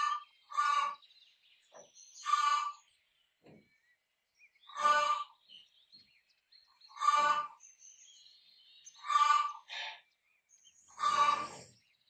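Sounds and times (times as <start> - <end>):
small birds chirping: 0.0 - 12.0
rooster agitated calls: 11.0 - 11.6.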